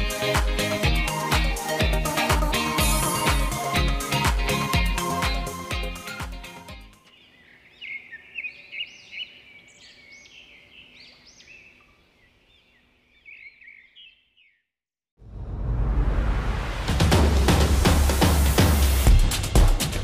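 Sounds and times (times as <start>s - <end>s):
music: 0.0s - 7.1s, 16.7s - 20.0s
birds chirping: 5.7s - 14.7s.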